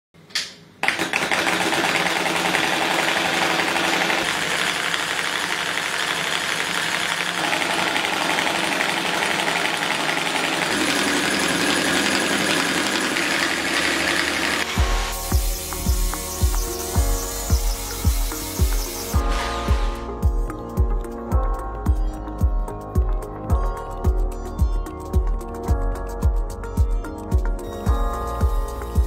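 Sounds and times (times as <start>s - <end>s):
solenoid engine clattering: 0.8s - 14.7s.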